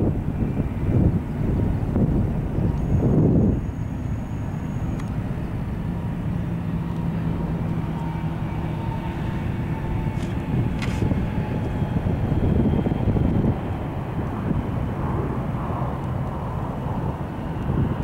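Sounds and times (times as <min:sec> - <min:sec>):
jet engines rumbling: 0:00.0 - 0:18.0.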